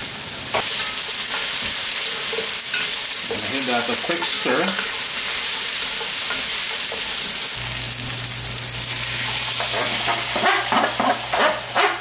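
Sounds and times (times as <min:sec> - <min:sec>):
meat sizzling in a pot: 0:00.0 - 0:12.0.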